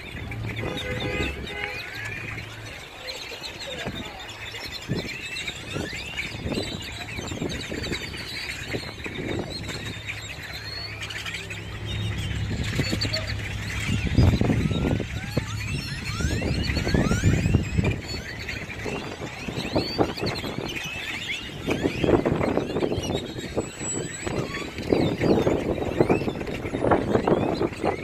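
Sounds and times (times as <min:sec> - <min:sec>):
flock of birds calling: 0:00.0 - 0:28.0
low steady hum: 0:09.3 - 0:20.6.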